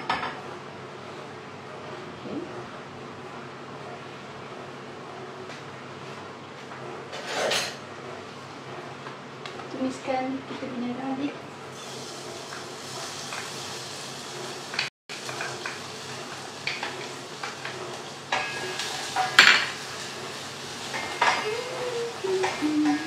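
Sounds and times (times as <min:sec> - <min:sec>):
utensils clinking against pots: 0:07.1 - 0:07.8, 0:14.7 - 0:15.8, 0:16.6 - 0:23.0
steady sizzle: 0:11.1 - 0:23.0.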